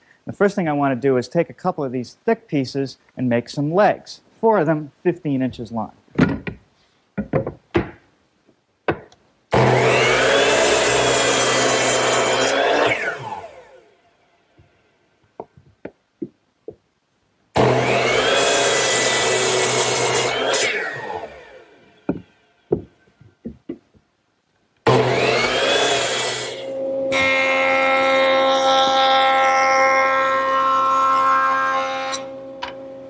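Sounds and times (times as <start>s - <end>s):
board knocks: 7.2s - 8.0s
miter saw cutting board: 9.5s - 13.8s, 17.6s - 22.2s, 24.9s - 33.0s.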